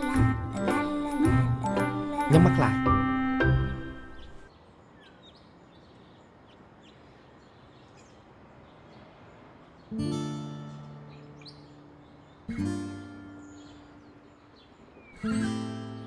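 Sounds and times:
soft background music: 0.0 - 4.5, 9.9 - 16.0
acoustic guitar chord strummed: 12.5 - 14.0.

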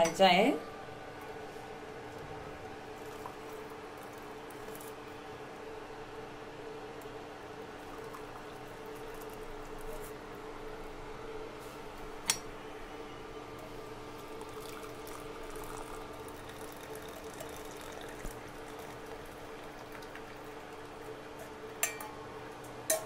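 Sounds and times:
steady low hum: 0.0 - 23.0
tea trickling through a strainer: 3.0 - 5.0, 7.6 - 10.2, 13.5 - 22.0.

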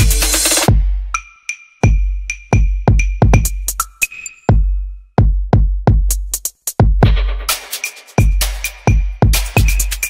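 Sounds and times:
electronic dance music: 0.0 - 1.1, 7.0 - 10.0
deep bass: 0.0 - 1.2
heavy kick drum: 0.0 - 1.2, 1.8 - 3.8, 4.5 - 10.0.

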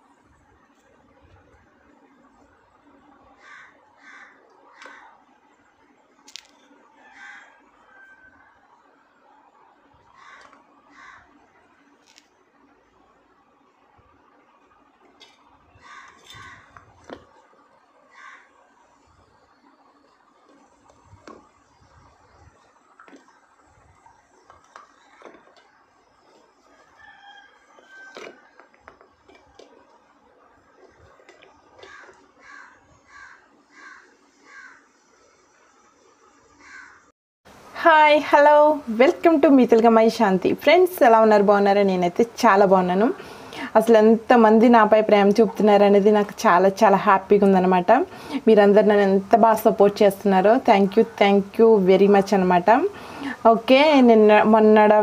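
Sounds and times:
distant rooster crowing: 3.4 - 5.2, 6.8 - 11.4, 15.8 - 16.8, 18.1 - 18.8, 26.3 - 28.7
harsh bird calls: 3.4 - 5.2, 10.1 - 11.4, 15.7 - 16.8, 18.1 - 18.6, 31.7 - 35.0.

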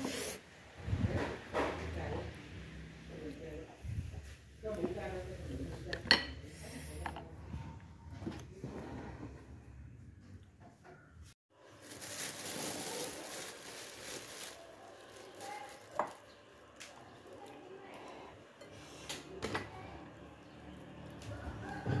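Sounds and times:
food handling rustling: 11.6 - 17.6.

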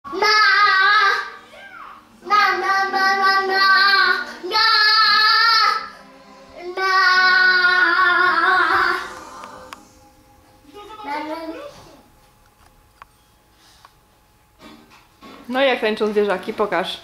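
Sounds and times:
child-like voice singing: 6.6 - 9.8.

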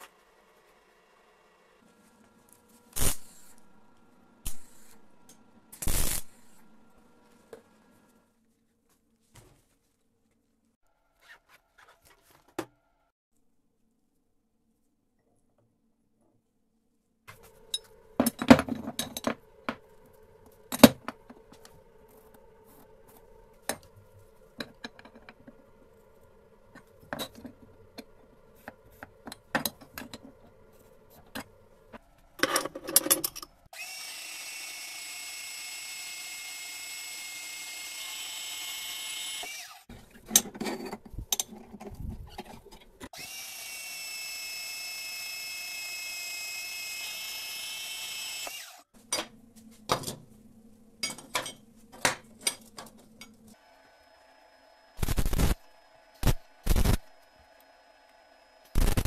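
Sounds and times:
band saw whining: 33.7 - 40.2, 43.1 - 48.9.

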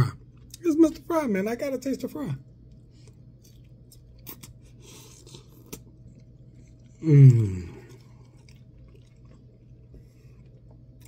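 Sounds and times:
person chewing fries: 0.0 - 1.0, 2.4 - 11.0
closed-mouth mmm: 6.9 - 8.2.

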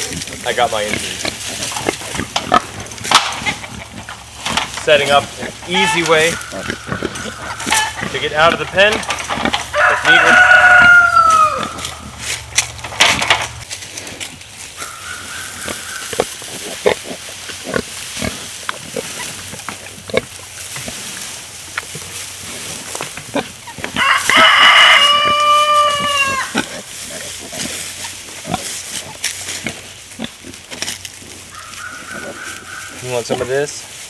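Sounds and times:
dry straw rustling: 0.0 - 34.0
pig squealing: 4.9 - 12.1, 14.8 - 20.3, 23.3 - 29.2, 31.2 - 33.6.

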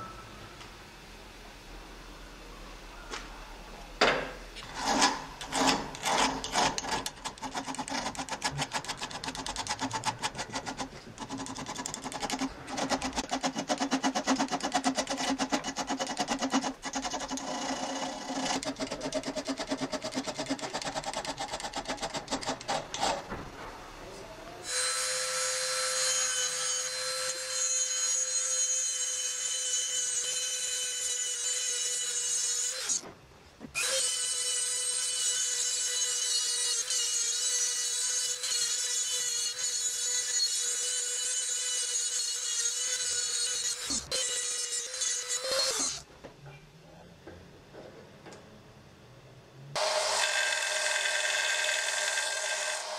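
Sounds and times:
hand file rasping on steel: 4.7 - 22.9
handheld rotary tool whining: 4.7 - 23.2, 33.8 - 46.0.

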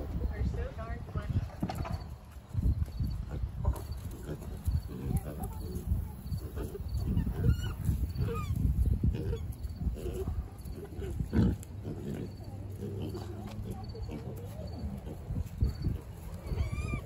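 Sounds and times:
farm animals calling: 3.0 - 17.0
squeal-like animal calls: 7.0 - 8.6, 16.4 - 17.0.

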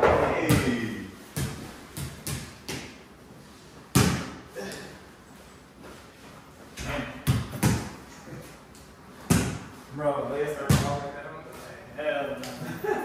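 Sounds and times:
ball bouncing on concrete: 1.4 - 3.0, 10.7 - 11.0.

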